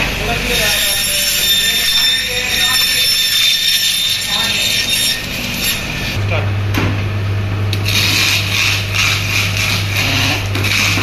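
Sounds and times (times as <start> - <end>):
scaler rasping fish scales: 7.8 - 11.0.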